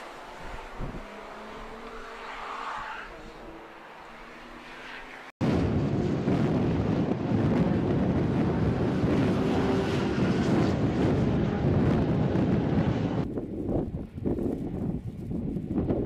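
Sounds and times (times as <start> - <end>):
wind buffeting microphone: 0.0 - 1.8, 5.4 - 16.0
race car engines: 0.0 - 13.3.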